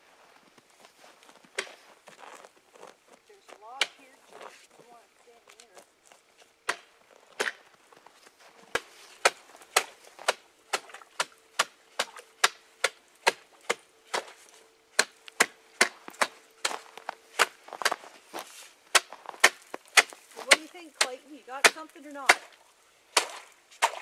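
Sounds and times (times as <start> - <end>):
ice being chopped: 1.5 - 2.9, 3.5 - 4.6, 6.6 - 8.0, 8.7 - 22.6, 23.2 - 24.0.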